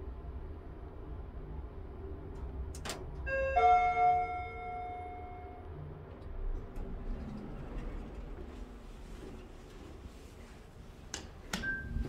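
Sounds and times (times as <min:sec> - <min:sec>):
elevator chime: 0:03.2 - 0:05.7, 0:11.6 - 0:12.0.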